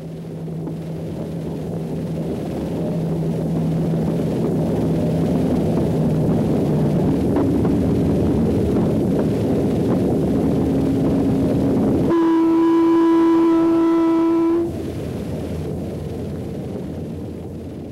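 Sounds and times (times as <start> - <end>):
diesel locomotive engine drone: 0.0 - 17.9.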